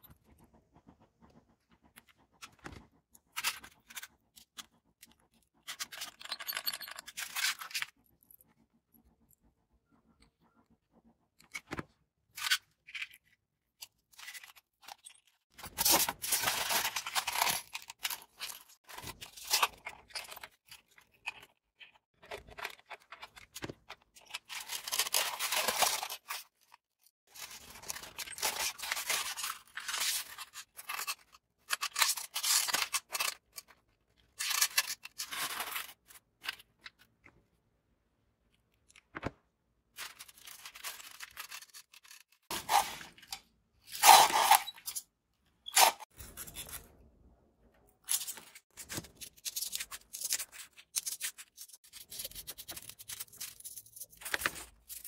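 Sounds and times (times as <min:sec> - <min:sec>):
foam pieces scraping and rubbing: 0:22.1 - 0:36.7, 0:40.0 - 0:45.0.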